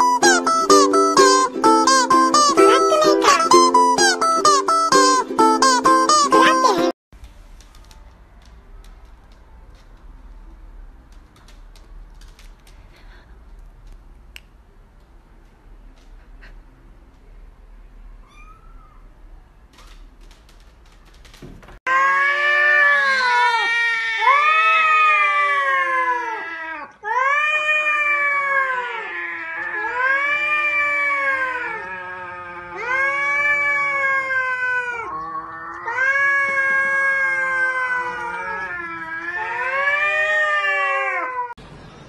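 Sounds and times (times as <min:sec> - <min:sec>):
cats yowling: 0:18.2 - 0:19.1, 0:21.9 - 0:41.6.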